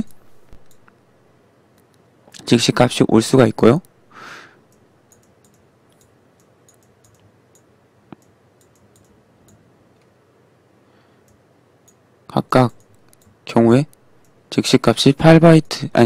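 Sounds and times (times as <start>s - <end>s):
computer mouse clicks: 0.5s - 1.0s, 1.7s - 2.4s, 4.7s - 10.1s, 11.2s - 12.0s, 12.8s - 13.4s.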